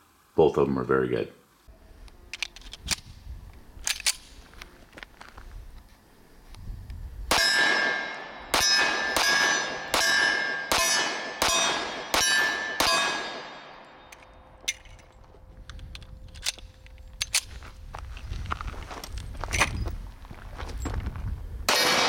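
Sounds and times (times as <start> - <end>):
pistol shots: 7.3 - 14.1, 21.7 - 22.0
ringing metallic clang: 7.3 - 15.2.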